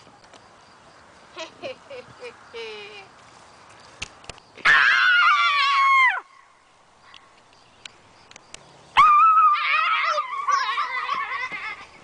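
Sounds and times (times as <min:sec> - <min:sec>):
boys screaming in fright: 0:04.6 - 0:06.3, 0:09.0 - 0:11.9.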